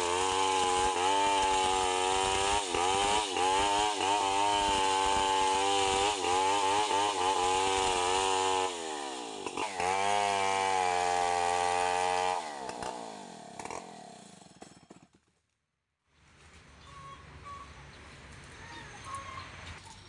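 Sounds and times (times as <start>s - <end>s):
chainsaw cutting log: 0.0s - 15.3s.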